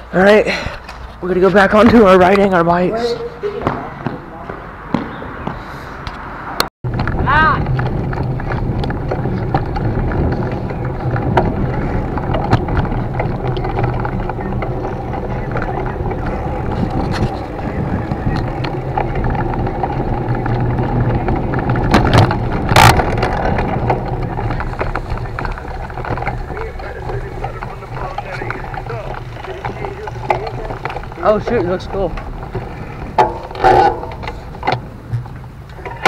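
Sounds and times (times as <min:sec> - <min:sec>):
tyres rolling on paved path: 0:00.0 - 0:36.0
wind on microphone: 0:06.8 - 0:35.5
loud rattle: 0:06.9 - 0:35.4.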